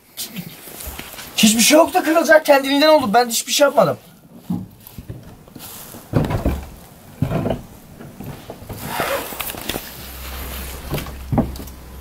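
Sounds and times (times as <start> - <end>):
rustle: 3.7 - 6.7, 8.2 - 12.0
old wood creaking: 4.4 - 12.0.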